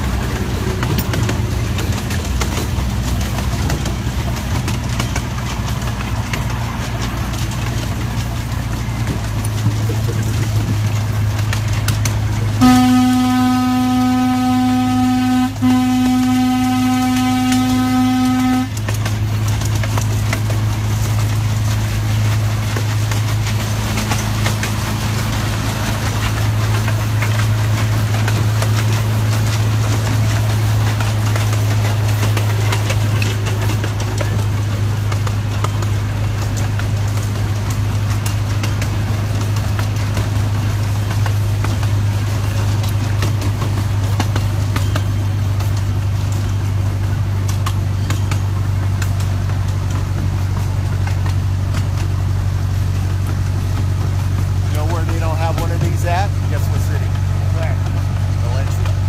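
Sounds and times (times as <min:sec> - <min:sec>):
miniature train engine hum: 0:00.0 - 0:59.0
wheels clattering on track: 0:00.0 - 0:59.0.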